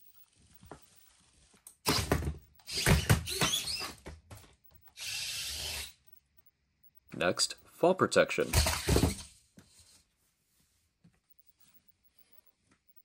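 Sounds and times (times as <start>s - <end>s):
servos whirring: 1.7s - 4.0s, 4.7s - 6.2s, 8.4s - 9.3s.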